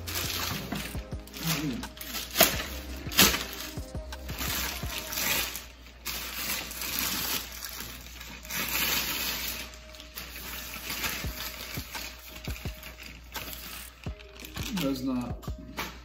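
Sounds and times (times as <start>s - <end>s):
plastic wrapping crinkling: 0.0s - 16.0s.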